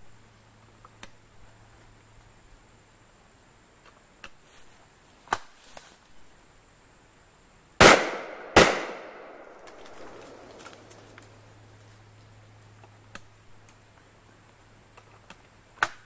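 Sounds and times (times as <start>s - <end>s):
shotgun shots echoing: 7.8s - 10.6s.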